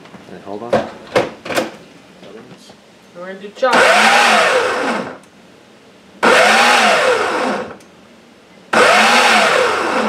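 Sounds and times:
food processor pulsing: 3.8s - 5.2s, 6.2s - 7.8s, 8.7s - 10.0s.

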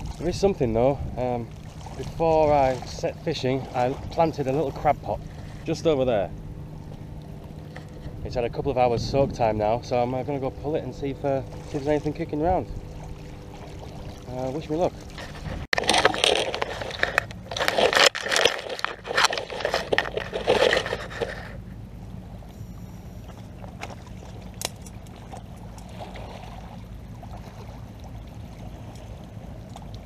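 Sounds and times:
water-side background: 0.0s - 30.0s
scraping and crunching: 14.9s - 21.6s.

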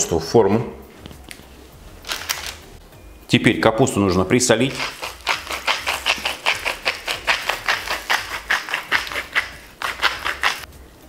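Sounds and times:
salt grinder grinding: 4.6s - 10.7s.

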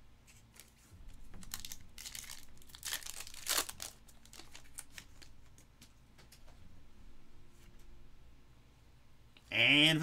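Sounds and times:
foil wrapper tearing and crinkling: 1.4s - 5.3s.

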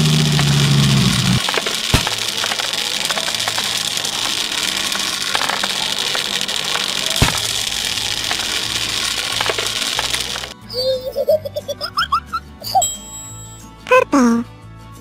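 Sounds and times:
low hum: 0.0s - 10.6s
small balls pouring and clattering: 0.0s - 10.6s.

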